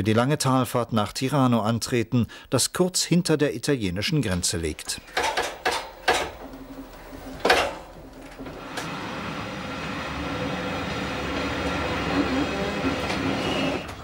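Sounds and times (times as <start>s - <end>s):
electric train running hum: 6.4s - 14.0s
sharp clunk: 7.4s - 7.9s.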